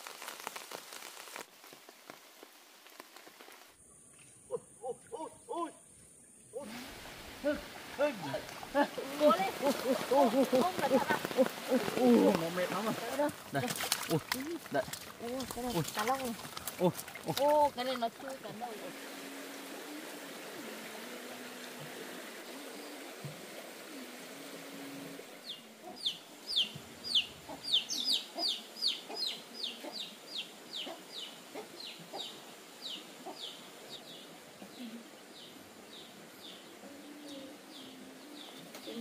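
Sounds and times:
background hiss: 0:00.0 - 0:39.0
animal chirping: 0:25.4 - 0:31.0.

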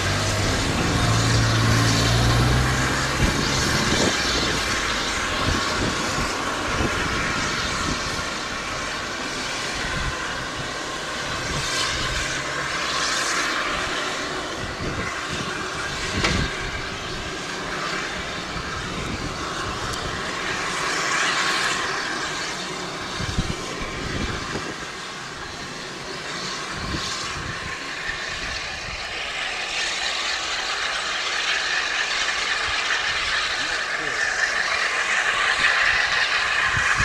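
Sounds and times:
steam train hiss and rumble: 0:00.0 - 0:37.0.

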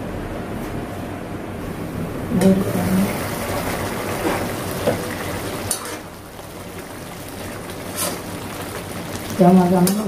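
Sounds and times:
gravy simmering and bubbling: 0:02.6 - 0:10.0.

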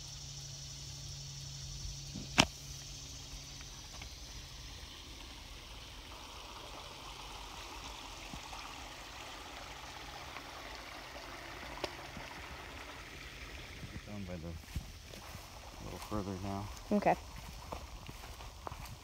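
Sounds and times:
creek rushing: 0:04.3 - 0:19.0.

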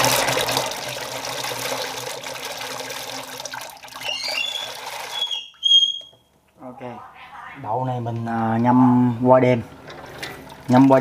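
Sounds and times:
water pouring into a bowl: 0:00.0 - 0:05.3, 0:10.4 - 0:11.0.

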